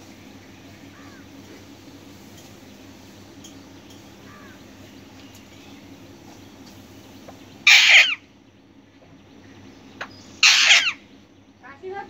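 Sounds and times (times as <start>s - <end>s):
low background hum: 0.0s - 12.0s
faint bird chirps: 2.5s - 11.9s
parakeet harsh squawk: 7.6s - 8.2s, 10.4s - 11.1s.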